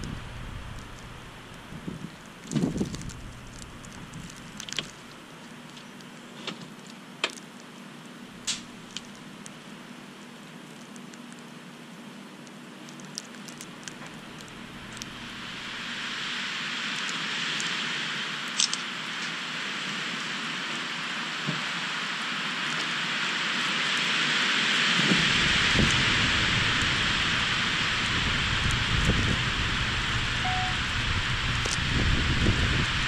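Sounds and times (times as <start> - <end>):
wind buffeting microphone: 0.0 - 4.6, 24.9 - 33.0
hiss of wind-blown snow: 13.7 - 33.0.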